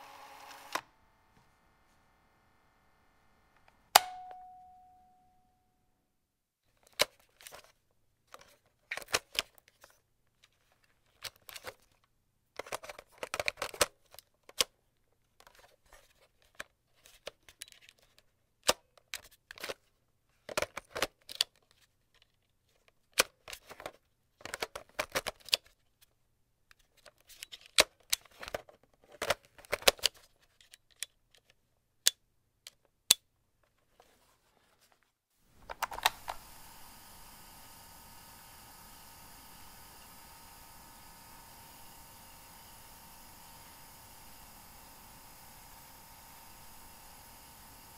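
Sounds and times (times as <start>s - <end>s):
plastic clicks and clacks: 8.3s - 14.7s, 20.4s - 25.8s, 26.7s - 33.8s, 35.6s - 36.4s
steady hiss: 35.5s - 47.9s.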